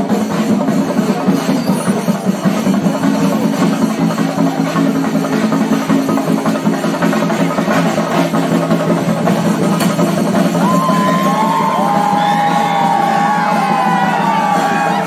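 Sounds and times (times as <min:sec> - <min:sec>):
loud music with dense drumming: 0:00.0 - 0:15.0
crowd cheering and whooping: 0:10.4 - 0:15.0.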